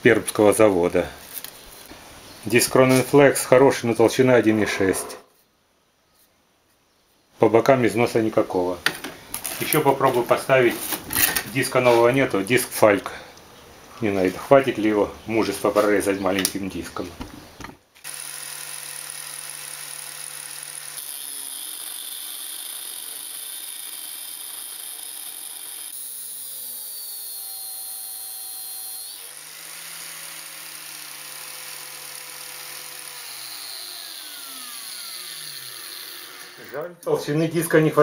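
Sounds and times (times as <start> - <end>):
angle grinder cutting metal: 18.0 - 36.8.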